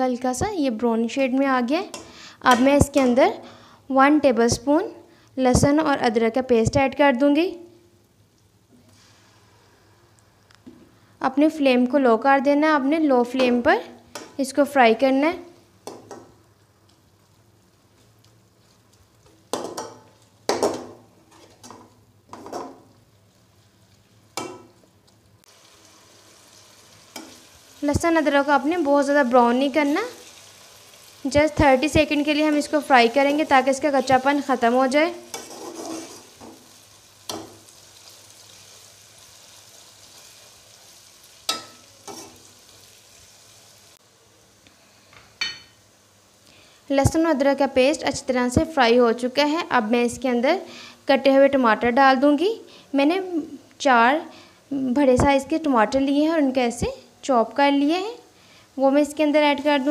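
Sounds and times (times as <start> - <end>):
frying oil sizzling: 13.4 - 44.6
metal spatula scraping a pan: 35.1 - 36.6, 41.5 - 42.5.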